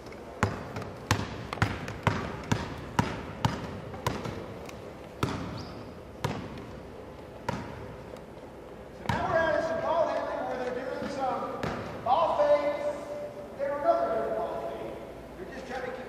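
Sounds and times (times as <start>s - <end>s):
basketball bouncing on wooden floor: 0.4s - 4.5s, 5.2s - 6.7s, 7.4s - 8.0s, 11.6s - 12.0s.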